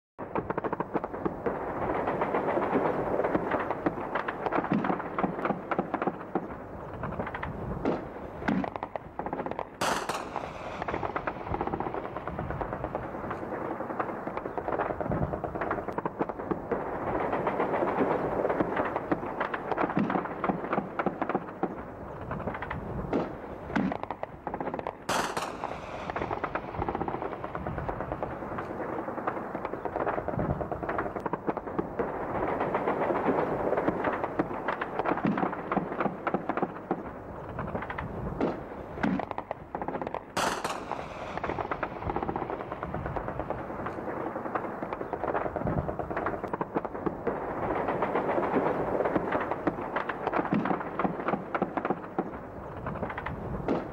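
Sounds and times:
sharp gunshot cracks: 0:02.2 - 0:21.8, 0:22.6 - 0:31.9, 0:37.7 - 0:47.2.

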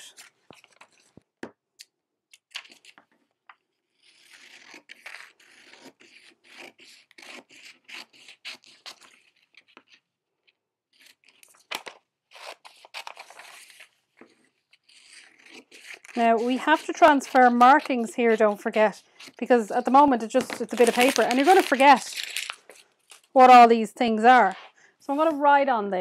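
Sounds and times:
paper rustling: 0:00.0 - 0:01.3, 0:08.1 - 0:23.4
scissors cutting paper: 0:03.8 - 0:10.1, 0:11.0 - 0:23.6.

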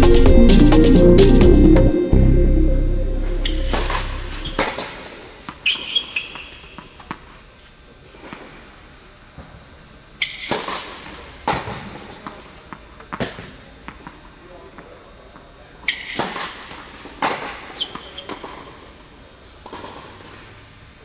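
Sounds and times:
background music: 0:00.0 - 0:04.7
racket hitting ball: 0:10.4 - 0:14.1.

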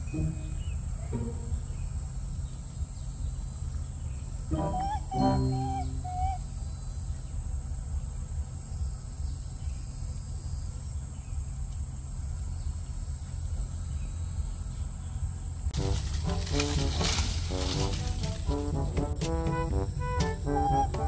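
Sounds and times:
insects chirping: 0:00.0 - 0:21.0
pitched voice or call: 0:04.5 - 0:06.4.

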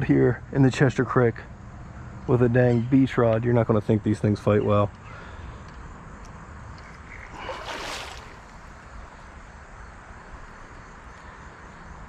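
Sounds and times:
fish splashing in water: 0:07.1 - 0:08.8.

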